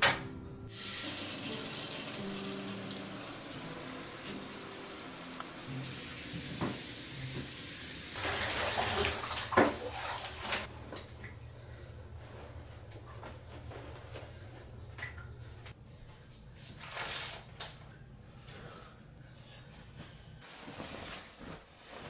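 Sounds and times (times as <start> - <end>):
shower water spraying: 0.7 - 10.7.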